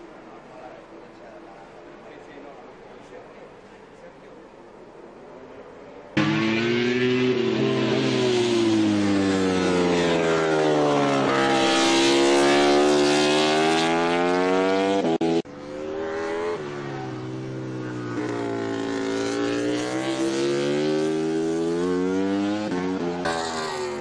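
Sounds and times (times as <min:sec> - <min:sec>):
racing motorcycle engine revving: 0:06.2 - 0:24.0.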